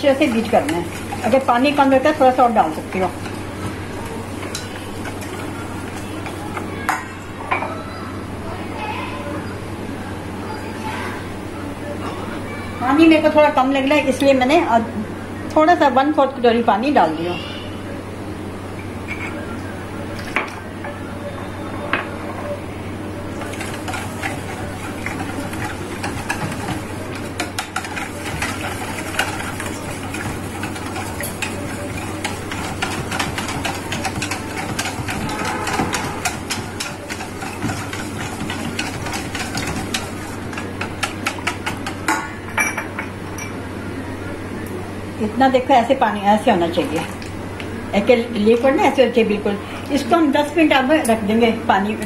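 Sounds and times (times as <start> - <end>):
whisk clicking against steel bowl: 23.4 - 42.2.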